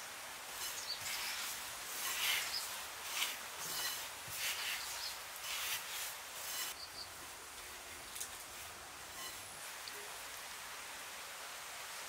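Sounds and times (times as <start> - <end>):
hand rubbing dry flour in metal pan: 0.5 - 6.7.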